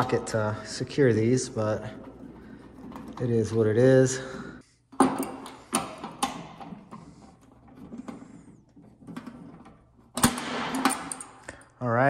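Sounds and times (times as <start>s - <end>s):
metal rattling: 0.0s - 4.4s.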